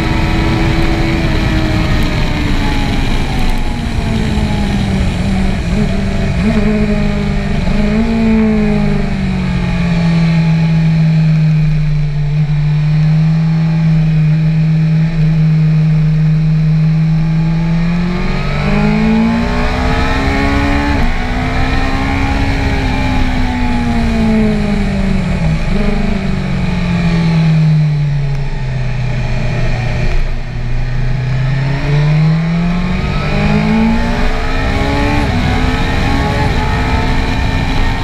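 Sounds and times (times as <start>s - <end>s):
motorcycle engine accelerating: 0.0s - 38.0s
wind rumble on camera: 0.0s - 38.0s.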